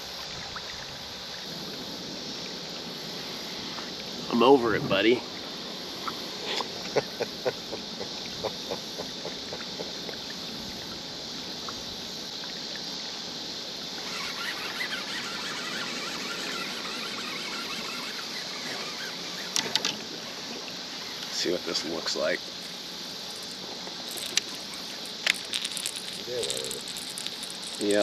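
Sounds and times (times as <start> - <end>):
water and wind hiss: 0.0 - 28.0.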